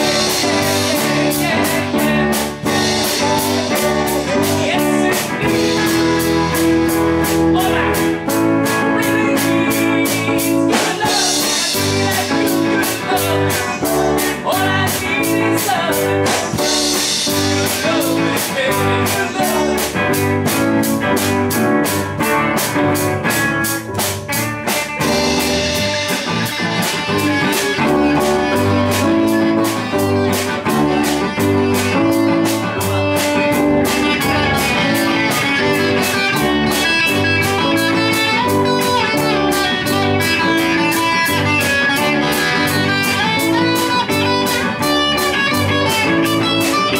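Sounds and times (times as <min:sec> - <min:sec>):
man singing into microphone: 0:00.0 - 0:20.3
drum kit with cymbal beat: 0:00.0 - 0:46.9
electric guitar: 0:00.0 - 0:46.9.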